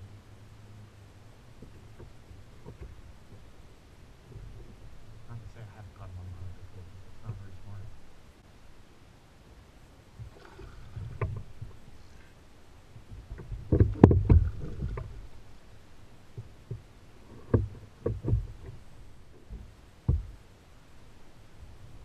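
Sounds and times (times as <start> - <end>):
water splashing: 10.2 - 12.0, 13.3 - 15.5.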